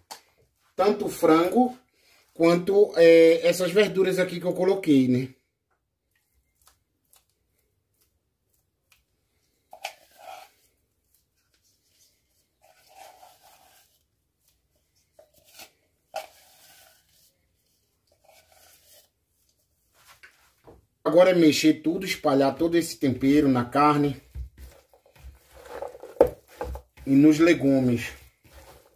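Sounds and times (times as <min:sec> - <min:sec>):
soft scrapes and rubs: 0:09.4 - 0:20.7, 0:23.1 - 0:28.9.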